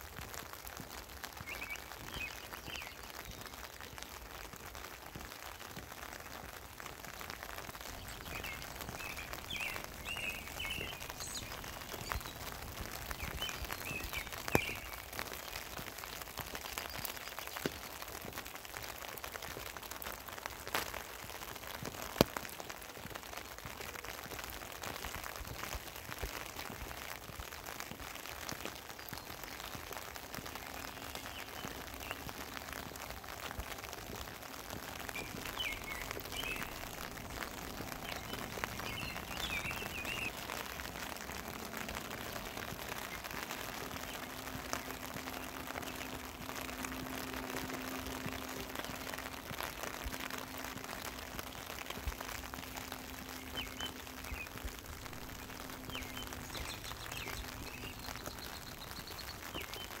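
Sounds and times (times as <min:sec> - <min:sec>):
steady rain falling: 0:00.0 - 1:00.0
bird chirps: 0:07.9 - 0:15.1, 0:35.1 - 0:40.7, 0:53.2 - 1:00.0.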